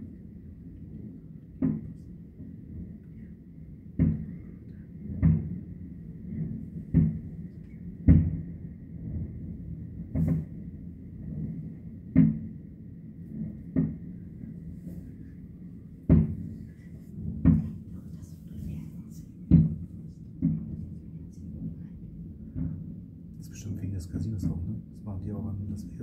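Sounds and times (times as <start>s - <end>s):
low rumble: 0.0s - 26.0s
distant firework booms: 8.0s - 8.6s.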